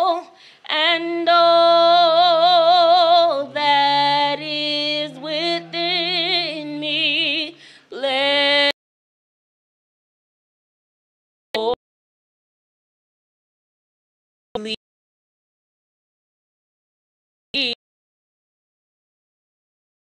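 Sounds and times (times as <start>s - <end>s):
woman singing with vibrato: 0.0s - 8.8s.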